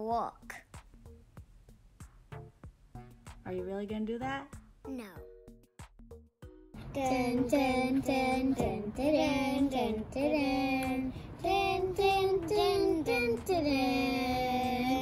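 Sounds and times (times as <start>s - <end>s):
child singing wordless tune: 6.8s - 15.0s.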